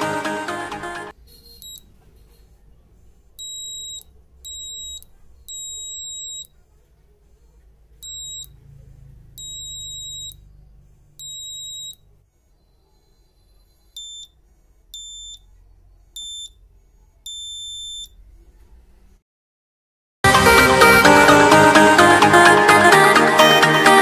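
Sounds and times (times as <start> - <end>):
high-pitched buzzer beeps: 3.4 - 6.5, 8.0 - 8.6, 9.4 - 10.5, 11.2 - 12.1, 13.7 - 15.5, 16.2 - 16.6, 17.3 - 18.2.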